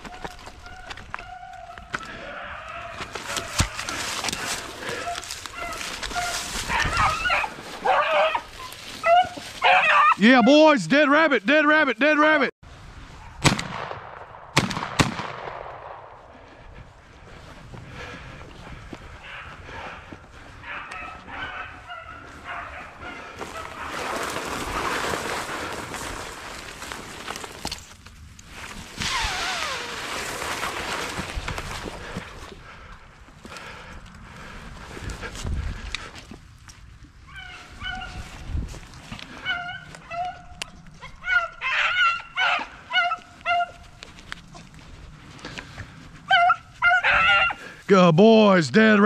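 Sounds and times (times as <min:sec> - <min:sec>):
dogs barking and yelping: 0:00.0 - 0:10.3, 0:19.1 - 0:24.0, 0:37.2 - 0:38.4, 0:39.2 - 0:44.6, 0:46.2 - 0:47.8
hounds baying: 0:00.0 - 0:10.5, 0:19.1 - 0:24.0, 0:37.3 - 0:38.4, 0:39.2 - 0:44.7, 0:45.8 - 0:47.8
rustle of dry brush: 0:03.1 - 0:10.2, 0:20.4 - 0:32.5.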